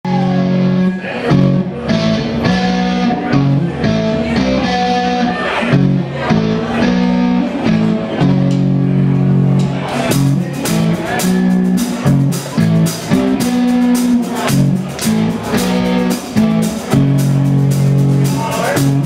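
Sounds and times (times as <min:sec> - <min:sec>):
bass guitar: 0:00.0 - 0:19.0
electric guitar riff: 0:00.0 - 0:19.0.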